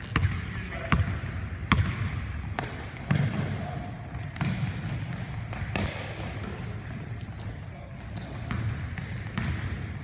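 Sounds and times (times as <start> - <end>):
sneaker squeaks: 0.0 - 1.1, 1.7 - 10.0
basketball bouncing on hardwood: 0.1 - 2.0, 8.5 - 9.7.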